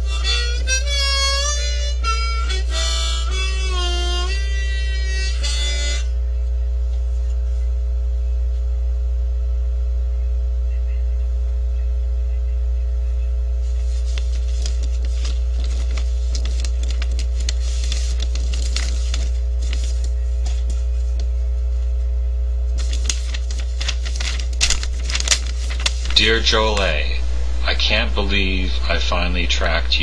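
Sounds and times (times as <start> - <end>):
low electrical hum: 0.0 - 30.0
paper rustling and crackling: 13.6 - 22.0, 22.6 - 27.0.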